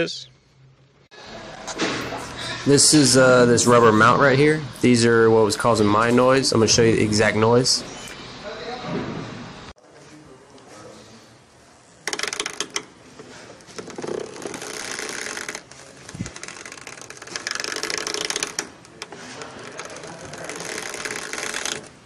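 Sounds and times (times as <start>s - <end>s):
rubber creaking against coil spring: 12.0s - 22.0s.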